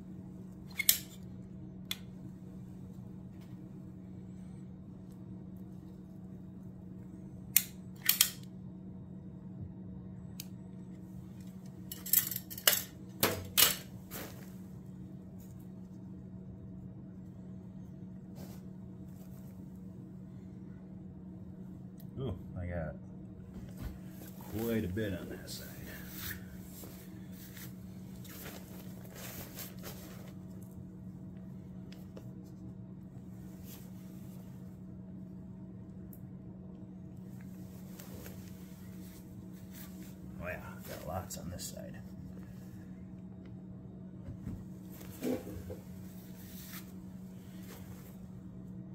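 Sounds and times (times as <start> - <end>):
steady low hum: 0.0 - 48.9
tent fabric rustling: 14.0 - 14.7, 25.9 - 30.4, 44.8 - 48.3.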